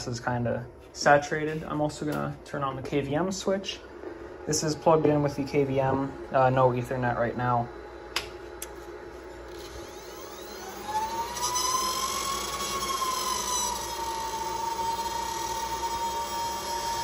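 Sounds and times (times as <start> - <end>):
server fans spinning up: 0.0 - 17.0
fan squealing: 9.5 - 17.0.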